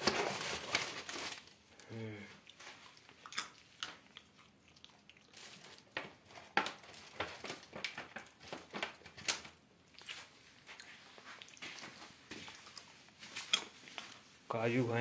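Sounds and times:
plastic bags crinkling: 0.0s - 1.8s, 5.3s - 10.6s.

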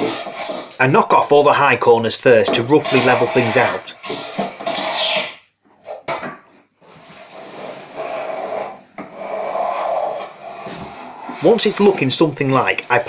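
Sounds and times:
hand plane shaving wood: 2.8s - 5.3s, 6.9s - 13.0s.

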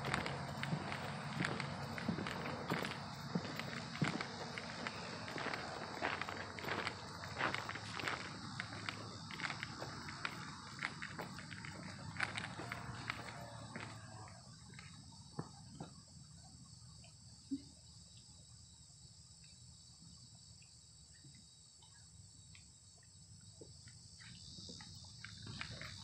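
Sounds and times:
faint footsteps: 0.0s - 15.6s
insects chirring: 0.0s - 26.0s.

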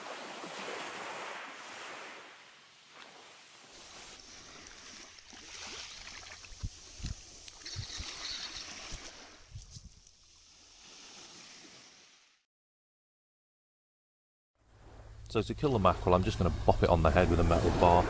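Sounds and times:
waves washing on shingle: 3.0s - 12.0s, 15.7s - 18.0s
fish splashing at surface: 3.8s - 9.4s.

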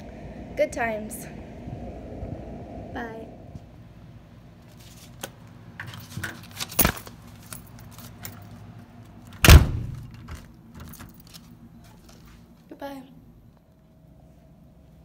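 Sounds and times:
keys jangling at door: 5.8s - 8.7s, 10.0s - 11.5s
door shutting with heavy thud: 9.4s - 10.4s.

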